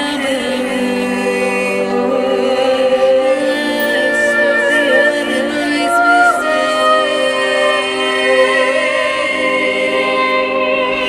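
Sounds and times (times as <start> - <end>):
woman singing held notes in harmony: 3.7 - 7.8.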